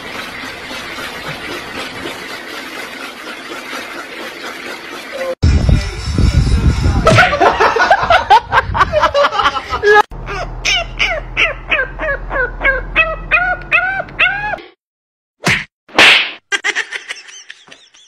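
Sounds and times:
puppy yelping: 10.7s - 14.6s.

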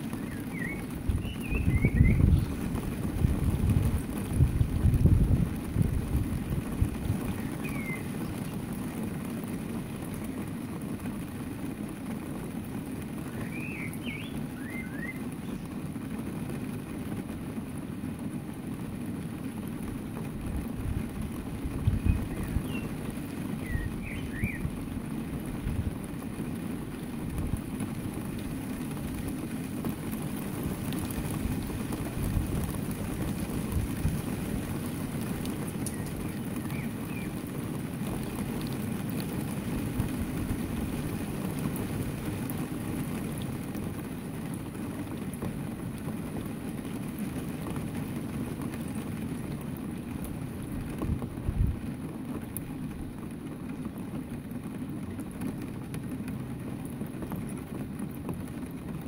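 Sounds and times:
wind rumble on microphone: 0.0s - 59.0s
sparrows chirping: 0.1s - 2.6s, 7.4s - 8.5s, 13.4s - 15.7s, 21.9s - 23.0s, 23.6s - 24.7s, 35.9s - 37.4s.

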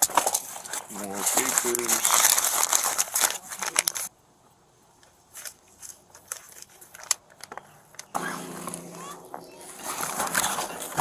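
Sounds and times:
papers rustling in a bag: 0.0s - 4.1s, 5.3s - 7.6s, 9.8s - 11.0s
steady hum: 8.2s - 11.0s.

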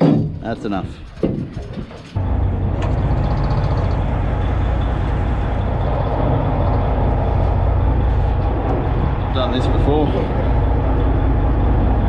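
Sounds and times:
boat diesel engine droning: 2.2s - 12.0s.

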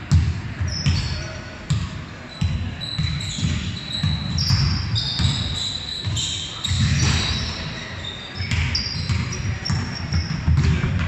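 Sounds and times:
sneakers squeaking: 0.1s - 11.0s
basketball dribbling on wooden floor: 8.5s - 11.0s.

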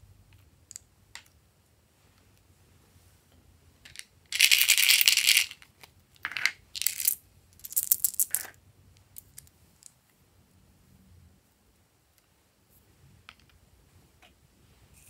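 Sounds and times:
plastic charms rattling in container: 4.4s - 5.6s, 6.2s - 8.5s.

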